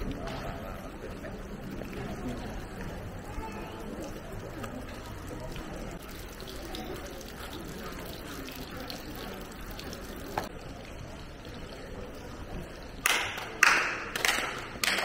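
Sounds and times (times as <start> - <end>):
faint indistinct voices: 0.0 - 15.0.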